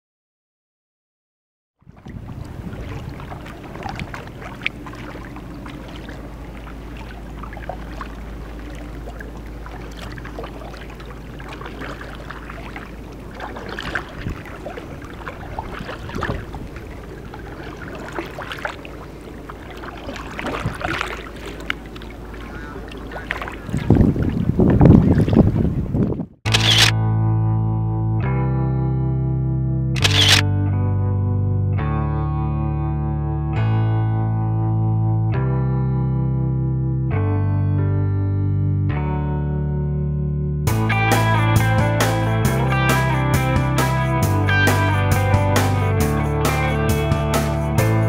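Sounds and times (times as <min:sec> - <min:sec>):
paddle splashing in water: 0:01.8 - 0:26.1.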